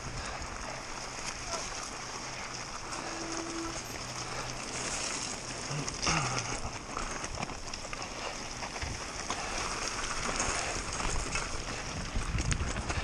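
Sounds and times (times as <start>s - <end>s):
bike rattling and knocking: 0.0s - 13.0s
wind rushing over microphone: 10.9s - 13.0s.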